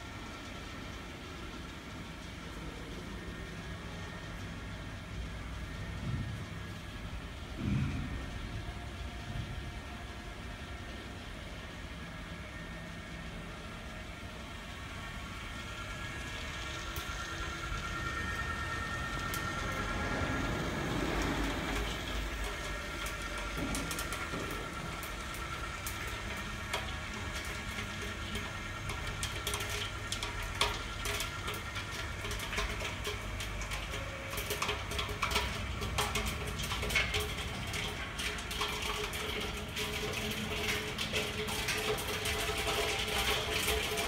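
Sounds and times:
popcorn machine humming: 0:00.0 - 0:44.0
popcorn kernels popping: 0:21.7 - 0:44.0.

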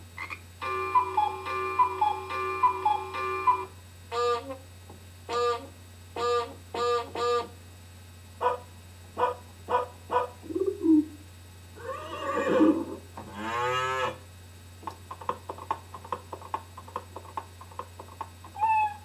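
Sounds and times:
short pitched calls: 0:09.2 - 0:11.2, 0:11.8 - 0:14.2, 0:18.6 - 0:19.0
cow-like moo call: 0:11.8 - 0:14.2.

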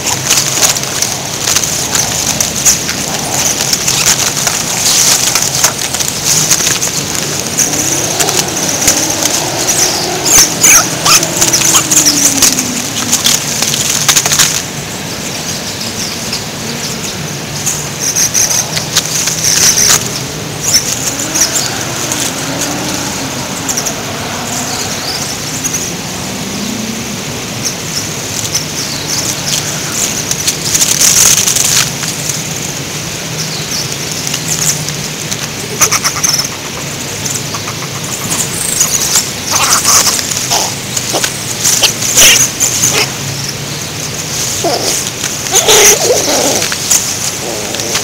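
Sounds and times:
plastic packaging crinkling: 0:00.0 - 0:14.8, 0:18.2 - 0:25.9, 0:28.2 - 0:32.8, 0:44.2 - 0:48.0.

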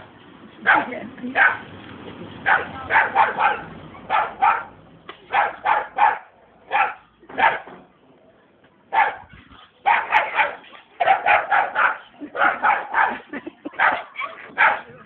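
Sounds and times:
small dog barking: 0:00.6 - 0:01.6, 0:02.5 - 0:04.7, 0:05.3 - 0:07.7, 0:08.9 - 0:09.3, 0:09.9 - 0:13.2, 0:13.8 - 0:14.9.

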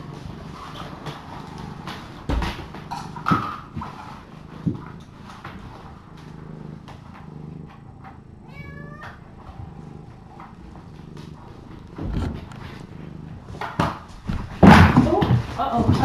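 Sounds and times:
faint low hum: 0:00.0 - 0:16.0
kitten meowing: 0:08.5 - 0:09.2.

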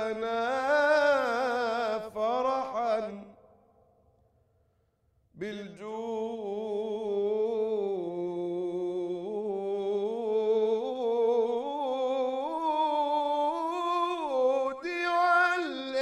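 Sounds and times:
man chanting: 0:00.0 - 0:03.4, 0:05.4 - 0:16.0.

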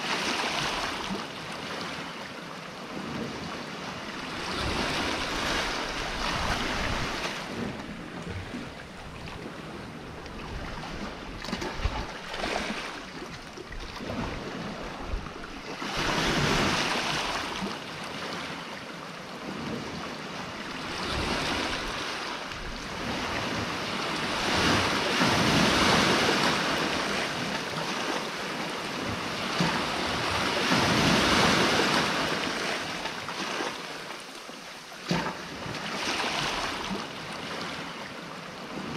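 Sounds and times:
sea waves breaking on rocks: 0:00.0 - 0:38.9
wind on microphone: 0:02.8 - 0:17.8, 0:19.4 - 0:33.0.

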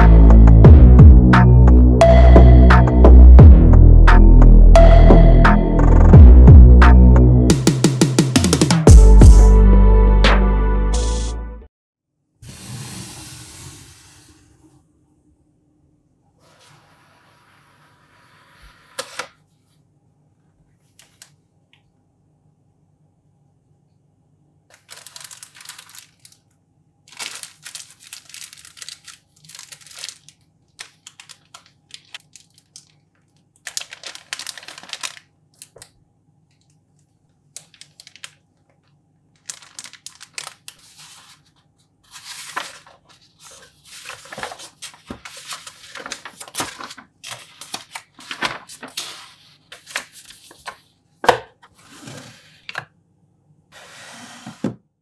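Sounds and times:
plastic bags crinkling: 0:24.7 - 0:35.9, 0:37.5 - 0:38.5, 0:39.3 - 0:50.8.

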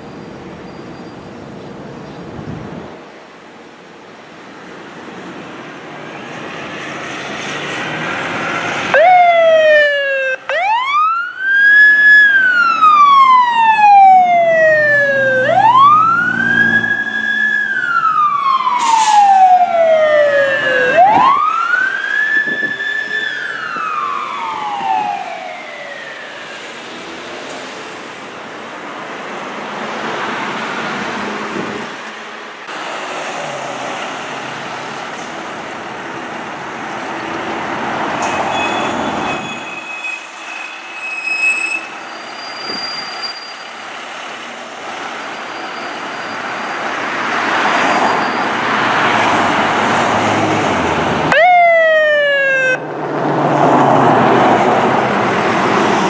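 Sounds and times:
truck engine and road noise: 0:00.0 - 0:56.0
fire engine siren wailing: 0:06.0 - 0:27.2, 0:44.9 - 0:56.0
shrill siren burst: 0:08.9 - 0:26.7, 0:51.3 - 0:52.8.

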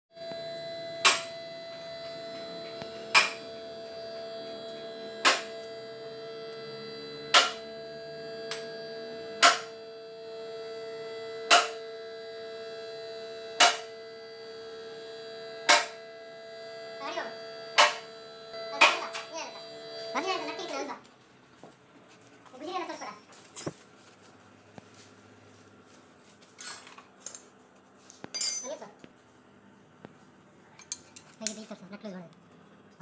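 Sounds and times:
hydraulic pump humming: 0:00.2 - 0:22.7.

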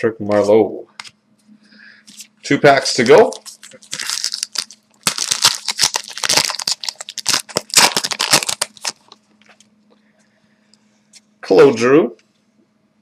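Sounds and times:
foil wrapper tearing and crinkling: 0:03.0 - 0:09.2.

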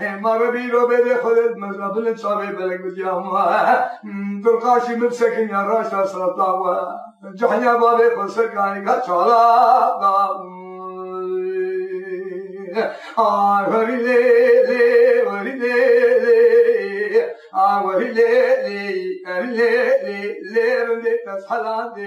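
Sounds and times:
man singing solo: 0:00.0 - 0:22.0.

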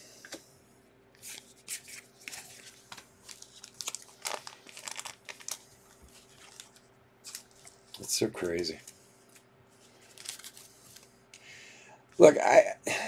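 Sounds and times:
trading cards flipped by hand: 0:08.8 - 0:11.1.

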